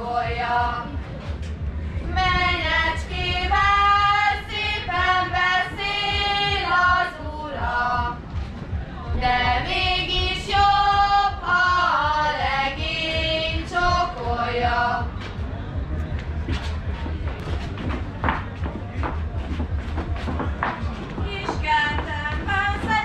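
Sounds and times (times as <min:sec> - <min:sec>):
girls singing a folk song: 0:00.0 - 0:01.1, 0:02.0 - 0:08.4, 0:09.1 - 0:15.3, 0:20.6 - 0:23.0.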